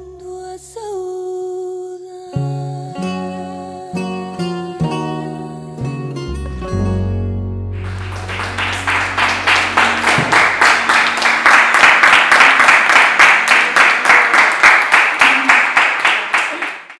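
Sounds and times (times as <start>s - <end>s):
low music note: 7.8s - 11.8s
audience applauding: 7.8s - 16.9s.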